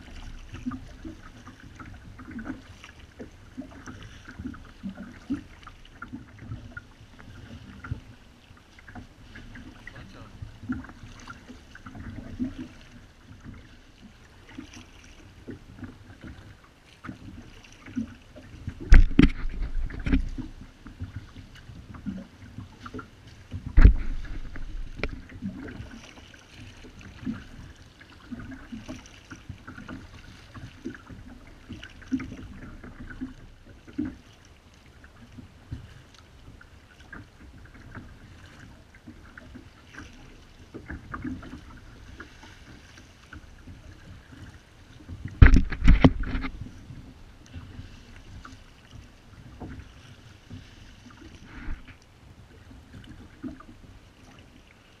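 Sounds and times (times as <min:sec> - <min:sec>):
water splashing against plastic hull: 0:00.0 - 0:54.7
paddle blades dipping: 0:00.0 - 0:55.0
loud thumps: 0:23.8 - 0:25.2.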